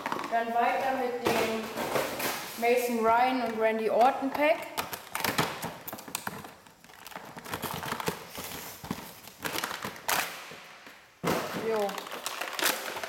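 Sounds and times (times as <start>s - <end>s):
toy packaging being opened: 4.8s - 10.4s, 11.6s - 13.0s.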